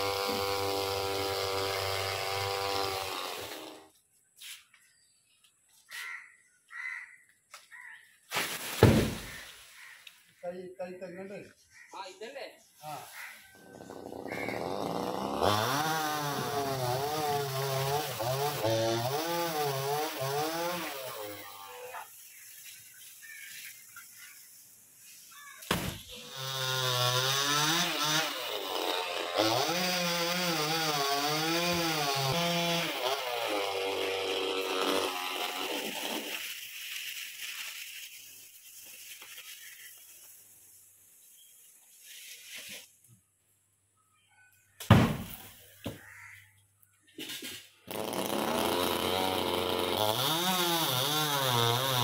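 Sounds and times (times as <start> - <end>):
chainsaw cutting wood: 0.0 - 3.9, 13.9 - 22.1, 25.7 - 37.3, 47.8 - 52.0.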